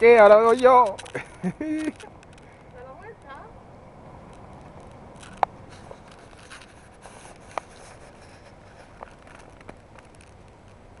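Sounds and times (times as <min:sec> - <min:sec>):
beach background hiss: 0:00.0 - 0:09.6.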